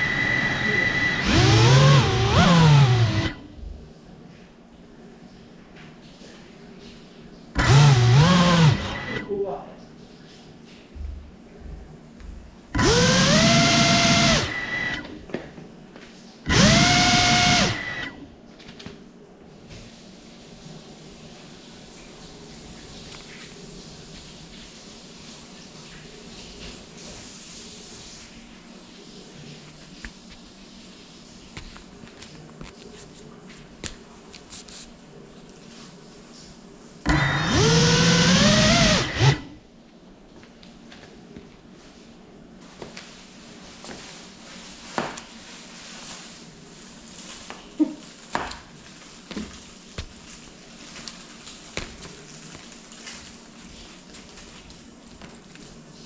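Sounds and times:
drone motors whining: 0.0 - 3.4, 7.6 - 9.3, 12.8 - 15.1, 16.5 - 18.2, 37.1 - 39.6.

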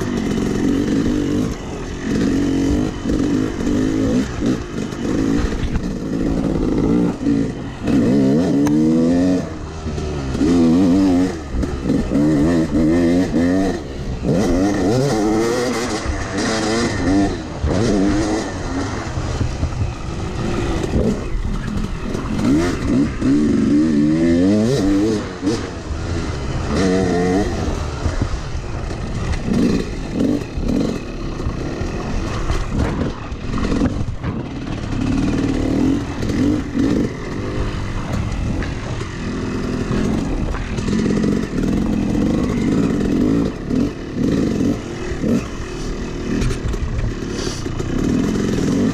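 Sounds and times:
dirt bike engine revving: 0.0 - 48.9.

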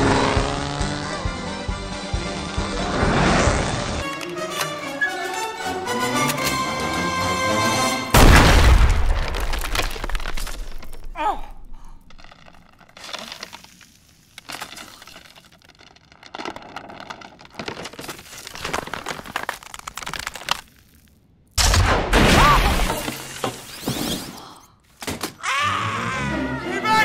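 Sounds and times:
loud crash: 8.1 - 11.2.

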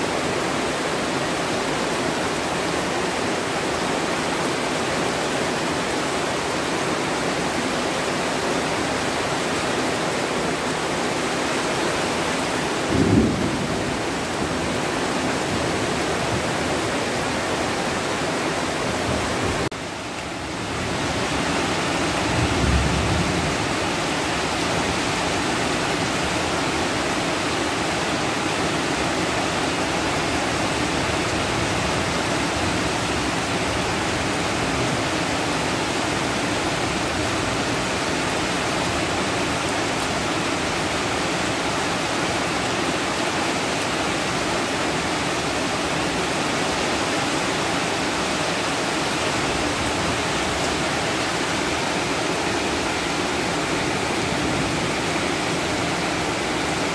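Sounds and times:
heavy rain pouring: 0.0 - 56.9.

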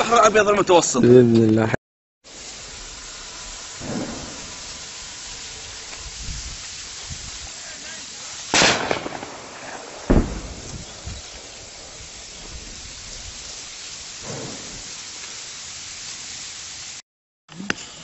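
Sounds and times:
microphone rustling through dry reeds: 2.4 - 16.2
sharp bangs: 3.7 - 5.3, 8.5 - 12.7.

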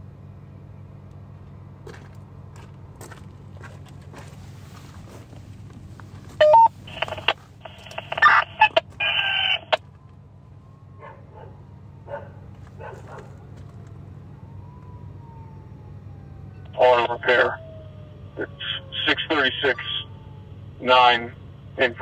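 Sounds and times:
steady low hum: 0.0 - 22.0
garbled radio transmission: 6.4 - 9.8, 16.7 - 17.6, 18.4 - 20.1, 20.8 - 22.0
radio scanner chirps: 6.4 - 9.8, 16.7 - 17.6, 18.4 - 20.1
faint siren wailing: 6.4 - 22.0.

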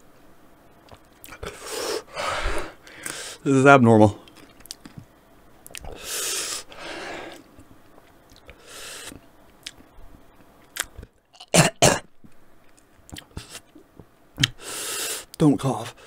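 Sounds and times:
man breathing hard and hissing: 1.4 - 3.5, 5.9 - 7.5, 8.6 - 9.2, 14.6 - 16.0
wet mouth clicks: 5.6 - 5.9, 12.7 - 13.6, 14.4 - 14.6
man coughing: 11.5 - 12.1.

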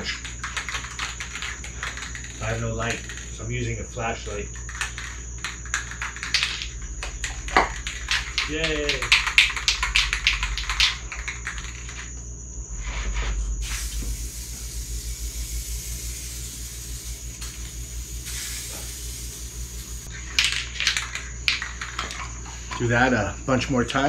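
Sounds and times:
spray can rattling: 0.0 - 3.4, 4.5 - 12.1, 13.6 - 22.2
spray paint hissing: 0.0 - 3.4, 4.5 - 12.0, 13.6 - 20.2.

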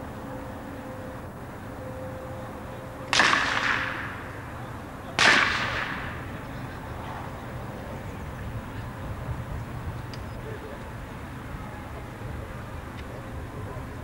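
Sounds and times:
blank pistol shots echoing: 3.1 - 4.4, 5.2 - 6.4.

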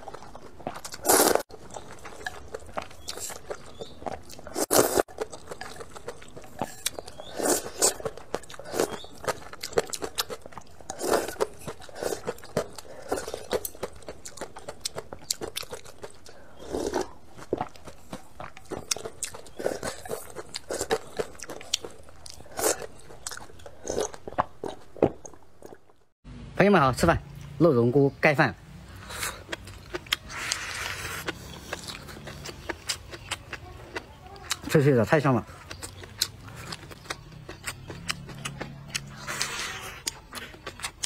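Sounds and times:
slurping soup broth: 0.9 - 1.5, 30.1 - 32.1, 39.0 - 40.6.

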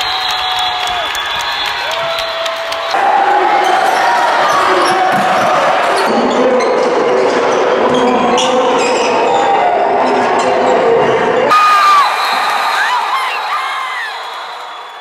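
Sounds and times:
crowd voices hubbub: 2.9 - 12.1.

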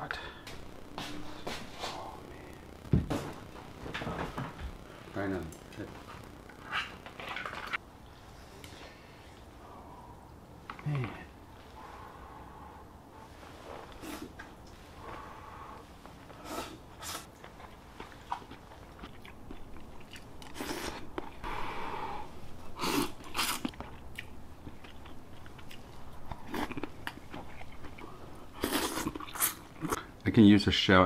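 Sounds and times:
person slurping noodles: 13.9 - 14.4, 20.5 - 23.6, 28.6 - 30.0
chewing: 17.2 - 21.4, 22.8 - 30.1.

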